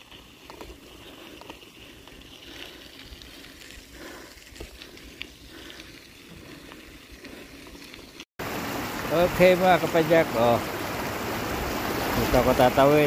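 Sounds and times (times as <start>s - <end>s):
bike ticks and rattles: 0.0s - 8.2s
bicycle tyre noise: 0.0s - 8.3s.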